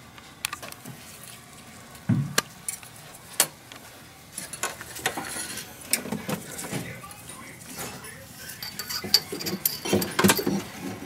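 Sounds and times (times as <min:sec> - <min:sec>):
small metal parts clinking: 0:08.5 - 0:10.7.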